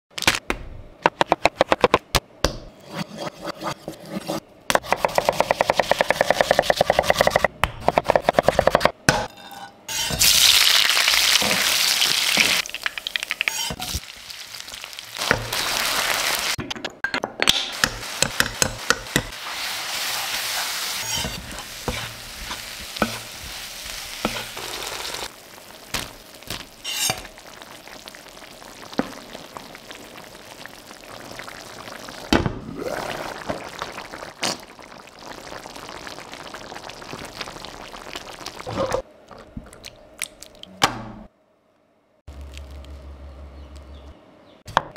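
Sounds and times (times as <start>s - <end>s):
food sizzling in hot oil: 9.9s - 16.6s, 17.8s - 38.7s.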